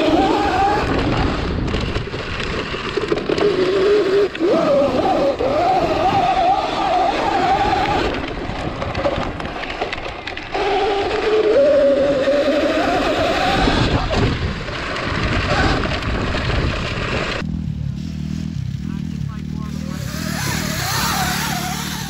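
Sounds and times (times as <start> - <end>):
wind rush: 0.0 - 2.8, 11.6 - 17.4
electric motor whine: 19.8 - 22.0.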